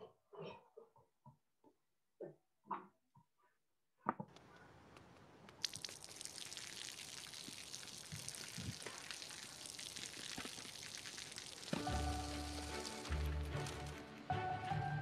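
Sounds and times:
water dripping onto pavement: 0:05.5 - 0:13.7.

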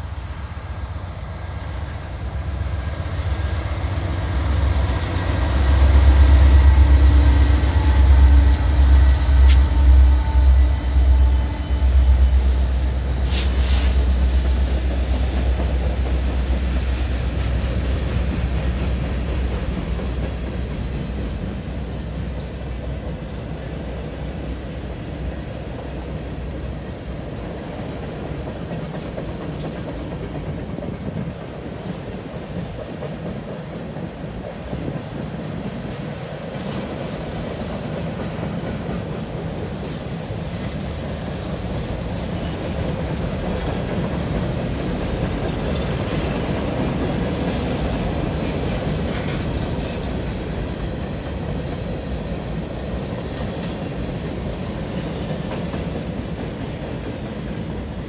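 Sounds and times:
diesel locomotive engine rumble: 0:00.0 - 0:58.0
train cars rolling and clattering: 0:01.2 - 0:58.0.

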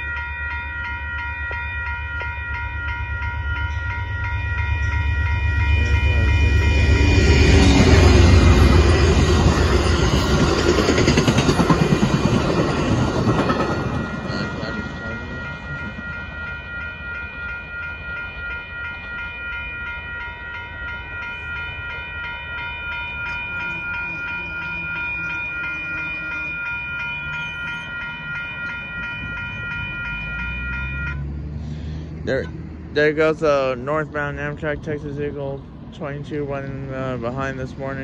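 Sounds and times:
crossing warning bell ringing: 0:00.0 - 0:38.0
train cars clacking over rails: 0:01.1 - 0:31.3.

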